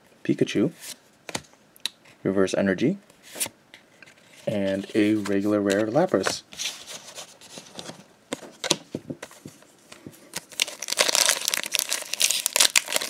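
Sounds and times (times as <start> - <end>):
foil wrapper crinkling: 10.3 - 13.0.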